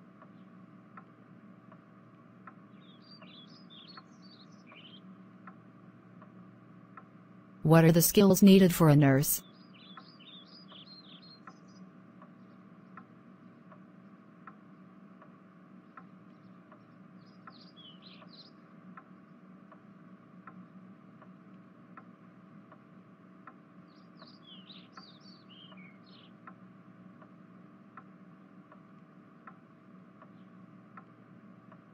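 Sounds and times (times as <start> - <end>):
faint steady ticking: 0.0 - 31.9
birds chirping: 2.7 - 5.1, 23.9 - 26.4.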